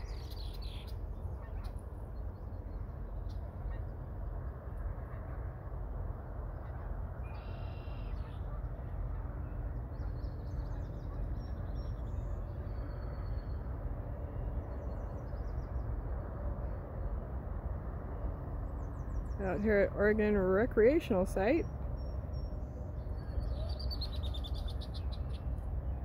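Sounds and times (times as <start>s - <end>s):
birds calling and chirping: 0.0s - 4.0s, 21.3s - 26.0s.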